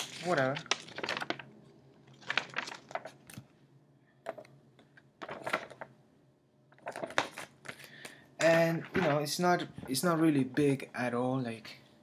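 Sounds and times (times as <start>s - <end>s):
paper rustling: 0.0s - 3.5s, 5.2s - 5.9s, 6.8s - 7.8s.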